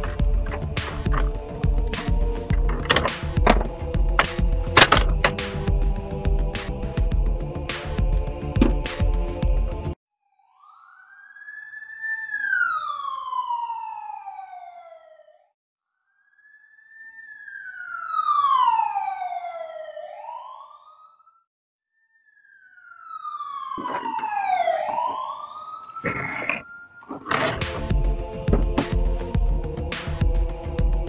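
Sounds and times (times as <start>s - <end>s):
emergency siren wailing: 0.0s - 5.7s, 10.2s - 21.5s, 22.1s - 29.6s.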